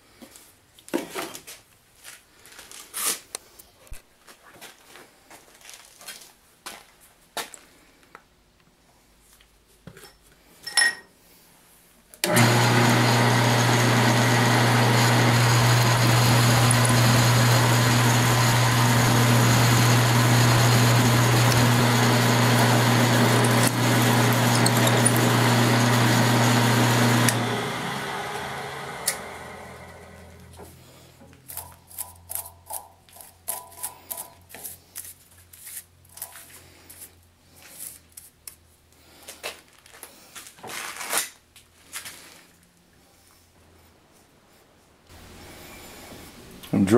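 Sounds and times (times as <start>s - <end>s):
drill boring into metal: 12.2s - 29.6s
drill press motor humming: 12.2s - 30.8s.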